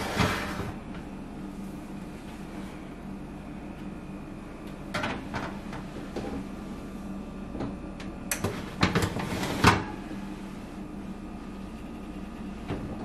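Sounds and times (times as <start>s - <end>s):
metal oven rack scraping and clanking: 0.0s - 0.8s, 8.4s - 10.1s
steady low hum: 0.0s - 13.0s.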